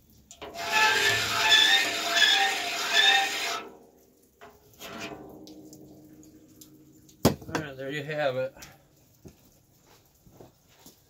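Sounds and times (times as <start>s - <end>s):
file scraping saw blade: 0.4s - 3.7s.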